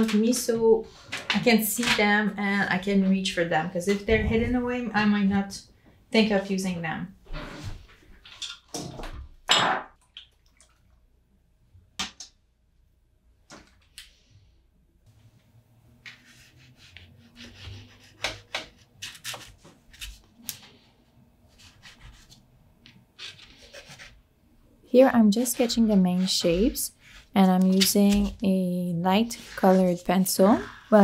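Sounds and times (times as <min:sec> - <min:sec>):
wax pastel scratching on paper: 0:16.2 - 0:20.1, 0:23.2 - 0:24.2, 0:29.2 - 0:30.9.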